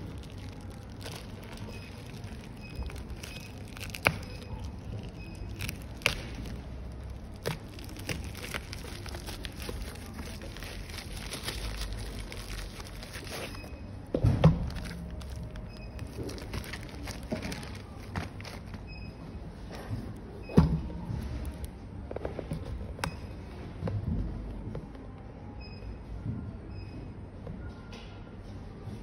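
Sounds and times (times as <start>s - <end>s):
plastic packaging crinkling: 0.0s - 13.8s, 14.6s - 18.9s.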